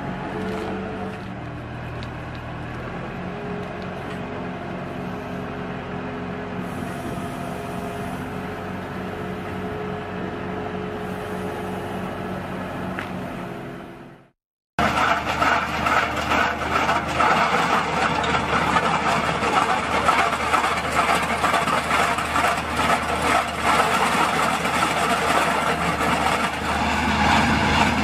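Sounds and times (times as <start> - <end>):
wheel loader machine hum: 0.0 - 28.0.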